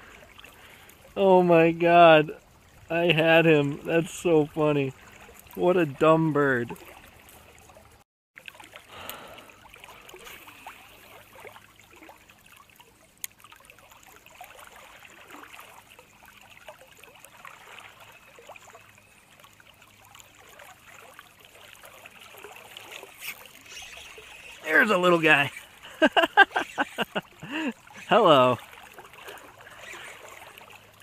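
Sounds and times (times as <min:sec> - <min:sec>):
river current trickling: 0:00.0 - 0:31.0.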